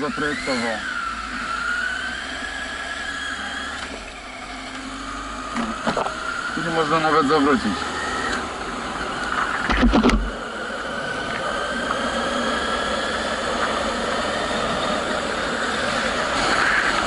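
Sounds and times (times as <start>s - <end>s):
motorcycle engine running: 0.0s - 17.0s
thuds: 9.6s - 10.3s.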